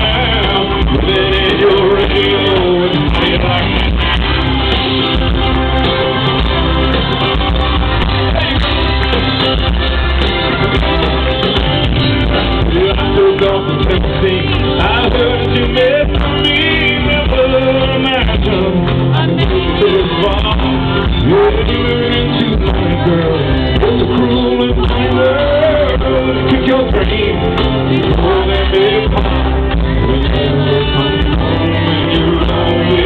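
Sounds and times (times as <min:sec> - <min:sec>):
man singing lead vocal: 0:00.0 - 0:05.3, 0:10.5 - 0:33.0
live country band: 0:00.0 - 0:33.0.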